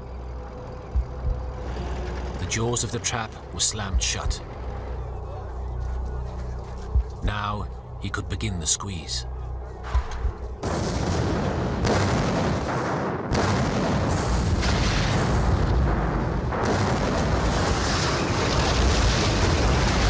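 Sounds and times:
continuous rumbling: 0.0 - 20.0
artillery booms: 9.9 - 20.0.

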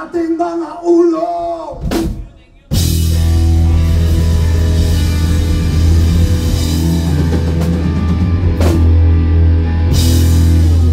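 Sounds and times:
drum kit: 1.7 - 10.9
electric guitars: 2.8 - 10.9.

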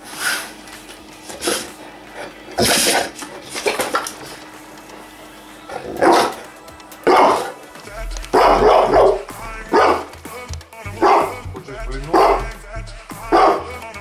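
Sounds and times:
dog begging vocalizations: 8.3 - 10.0, 11.0 - 11.4, 12.1 - 12.5.

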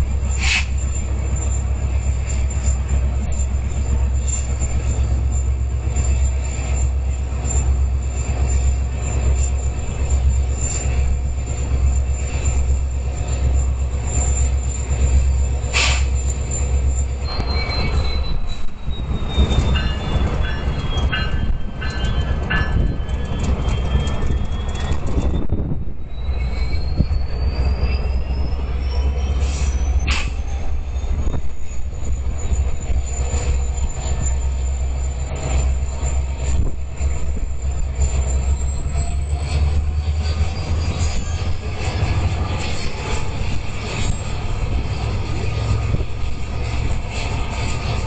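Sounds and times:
high wheel squeal: 0.0 - 48.0
train low rumble: 0.0 - 48.0
short sharp squeals: 14.2 - 31.4.

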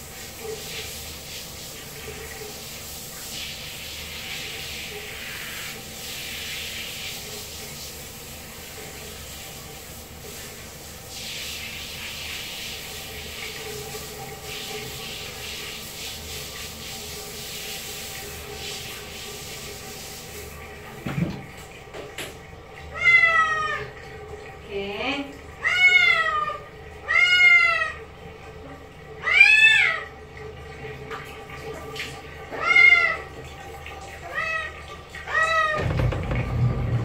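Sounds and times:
hands scrubbing wet soapy fur: 0.0 - 21.0.

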